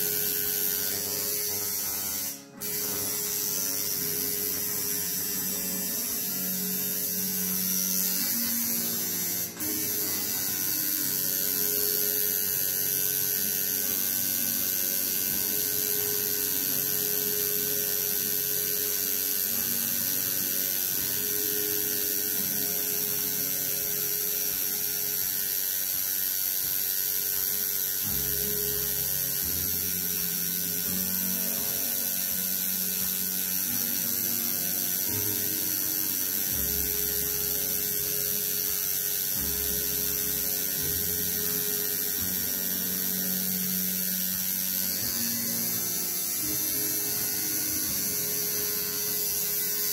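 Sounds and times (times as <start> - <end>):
tattoo machine buzzing: 0.0 - 49.9.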